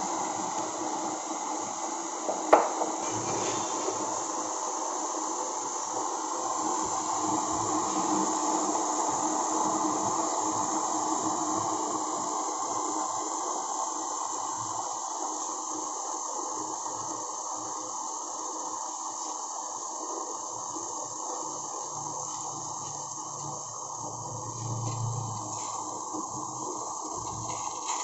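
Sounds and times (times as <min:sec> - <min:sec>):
water heating in a saucepan: 0:00.0 - 0:28.0.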